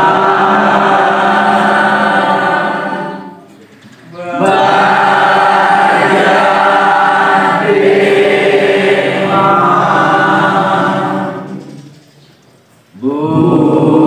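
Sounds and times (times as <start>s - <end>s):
voices singing in unison: 0.0s - 12.1s, 12.9s - 14.0s.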